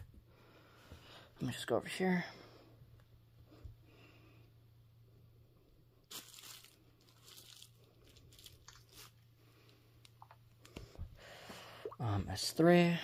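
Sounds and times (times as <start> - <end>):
faint rustles and crinkles: 6.0 - 11.1.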